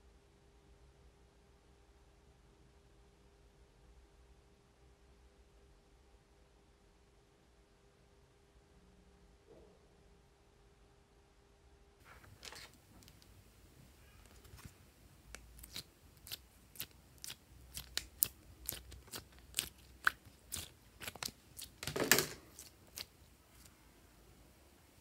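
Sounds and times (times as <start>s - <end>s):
slime clicking and popping: 15.3s - 21.8s, 22.5s - 23.1s.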